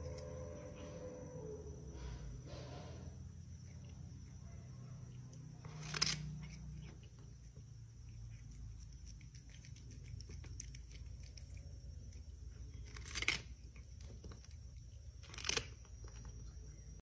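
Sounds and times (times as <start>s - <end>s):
low hum: 0.0s - 17.0s
cat crunching cucumber: 3.5s - 17.0s.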